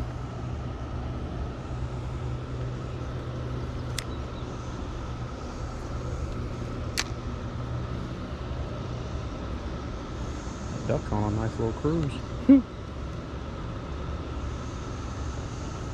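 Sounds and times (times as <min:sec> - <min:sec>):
cicada chorus: 0:00.0 - 0:15.9
low engine drone: 0:00.0 - 0:15.9
sharp clicks: 0:03.8 - 0:04.2, 0:06.3 - 0:07.2.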